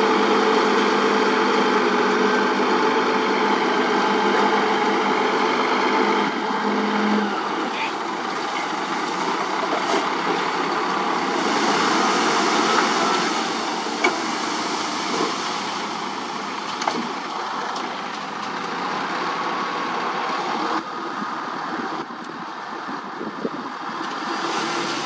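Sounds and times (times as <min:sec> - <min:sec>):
dump truck engine running: 0:00.0 - 0:25.0
soil pouring out: 0:08.4 - 0:18.8.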